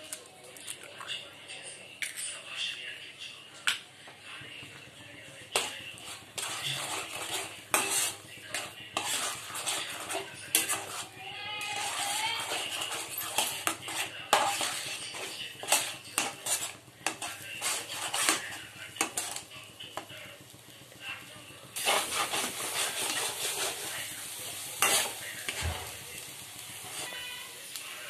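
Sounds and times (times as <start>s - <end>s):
metal spatula scraping a pan: 5.5s - 20.1s, 21.8s - 28.0s
egg sizzling in oil: 5.6s - 19.7s, 21.6s - 28.0s.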